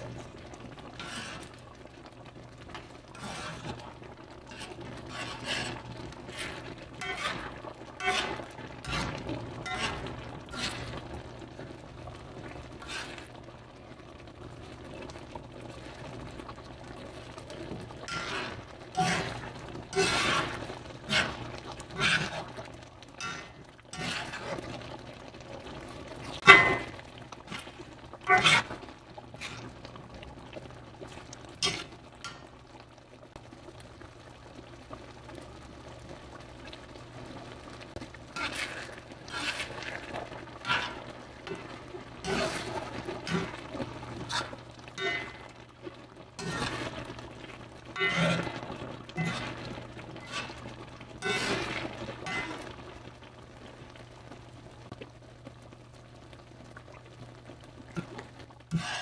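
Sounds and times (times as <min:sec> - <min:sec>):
spoon scraping pan: 0:01.0 - 0:01.6, 0:03.1 - 0:03.9, 0:04.5 - 0:11.1, 0:12.8 - 0:13.3, 0:18.0 - 0:22.6, 0:23.2 - 0:24.8, 0:26.4 - 0:28.8, 0:29.4 - 0:29.8, 0:31.6 - 0:32.5, 0:38.4 - 0:45.5, 0:46.4 - 0:47.1, 0:48.0 - 0:52.8, 0:58.0 - 0:59.0
sauce sloshing while stirred: 0:02.6 - 0:13.7, 0:17.1 - 0:25.1, 0:26.2 - 0:32.5, 0:38.0 - 0:52.9.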